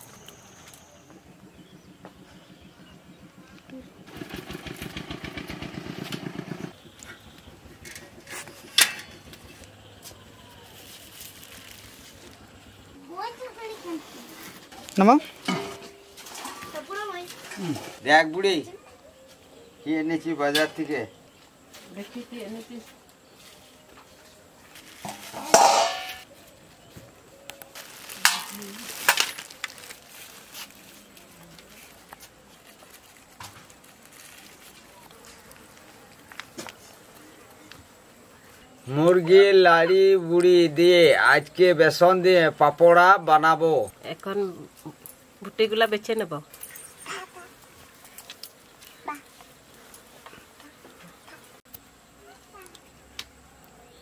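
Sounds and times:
motorcycle engine running: 0.1s - 12.9s
steel plate clattering: 7.8s - 9.6s, 15.4s - 16.6s, 25.1s - 26.2s
plastic bag rustling: 10.1s - 15.1s, 27.6s - 37.0s
wire basket clicks: 27.5s - 30.0s.

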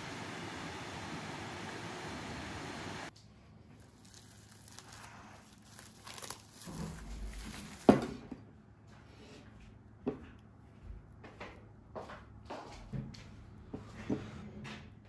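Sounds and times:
cling film crinkling: 3.8s - 8.0s.

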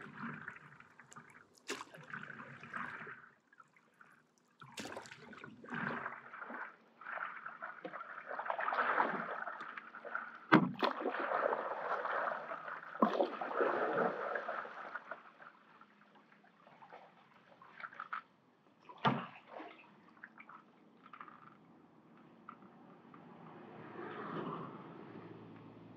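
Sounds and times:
paddle sloshing through water: 0.0s - 15.7s.

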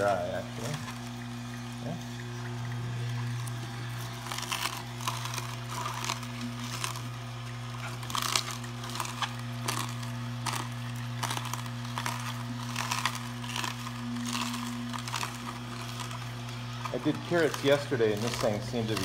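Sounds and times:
juicer motor hum: 0.0s - 19.0s
produce crunching in juicer: 0.0s - 19.0s.

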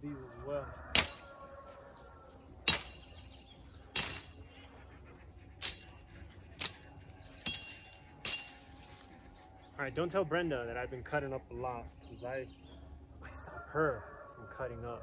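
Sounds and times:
machete chopping brush: 0.9s - 1.3s, 2.6s - 3.2s, 3.9s - 4.4s, 5.6s - 9.1s.

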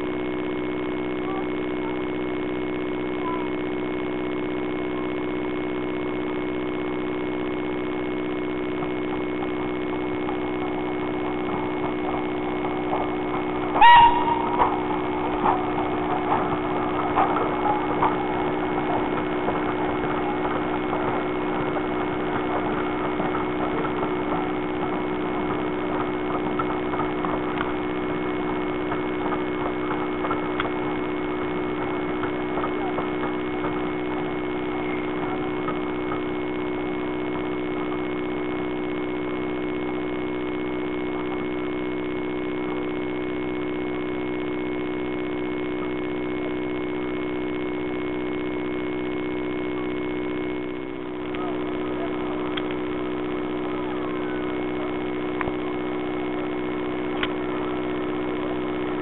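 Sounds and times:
steady machine hum: 0.0s - 59.0s
train clicks and knocks: 8.7s - 38.7s.

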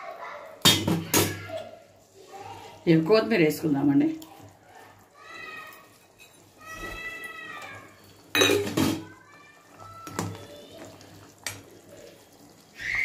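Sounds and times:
metallic clatter of pots: 5.7s - 6.6s, 7.8s - 9.2s.

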